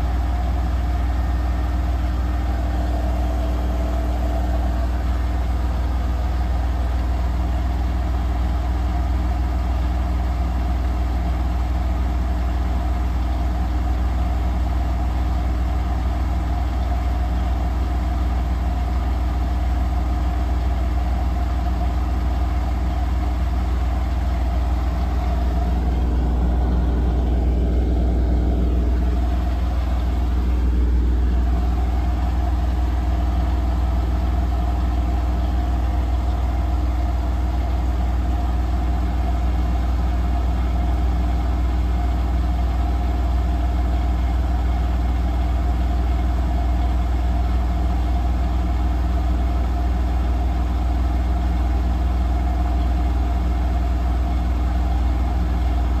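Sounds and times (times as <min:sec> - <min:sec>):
washing machine drum spinning: 0:00.0 - 0:08.0, 0:23.4 - 0:38.3.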